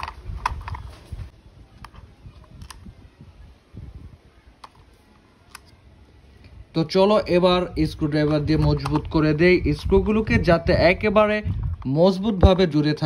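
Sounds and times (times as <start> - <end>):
faint handling noise: 0.0 - 3.5, 7.9 - 10.4
plastic toy clicks: 5.5 - 5.8, 8.2 - 9.3.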